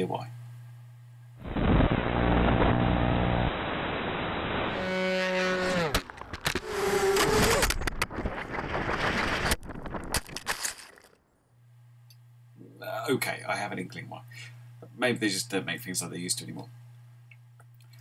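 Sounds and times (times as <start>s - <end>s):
drone crashing through branches: 1.4s - 11.2s
drone motors whining: 1.5s - 7.9s.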